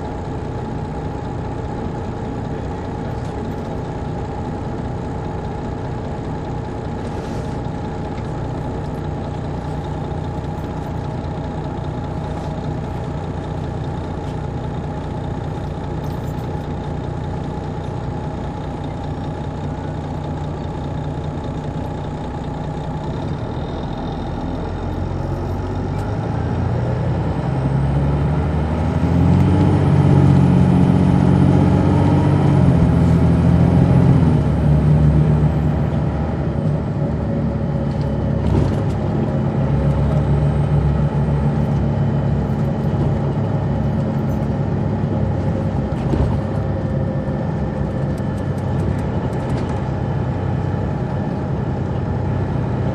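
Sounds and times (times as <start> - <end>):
bus diesel engine running: 0.0 - 52.9.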